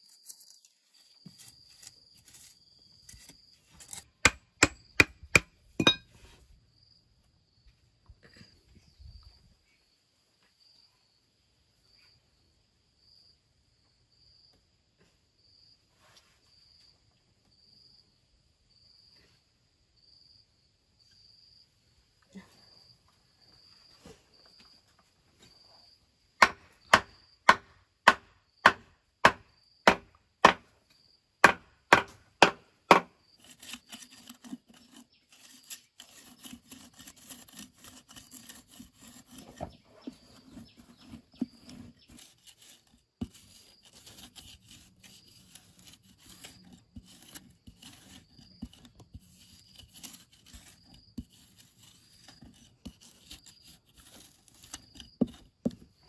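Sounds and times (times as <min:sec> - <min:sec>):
scraping and rubbing: 0:00.0 - 0:06.4, 0:31.9 - 0:56.0
sharp knocks on wood: 0:26.4 - 0:30.7, 0:31.4 - 0:33.1.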